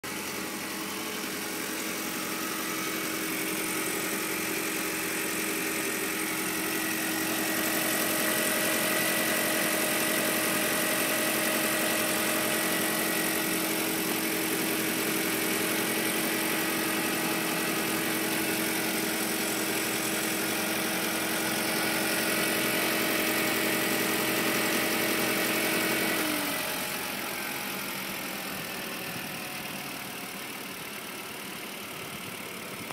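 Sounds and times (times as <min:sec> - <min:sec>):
car engine idling: 0:00.0 - 0:32.9.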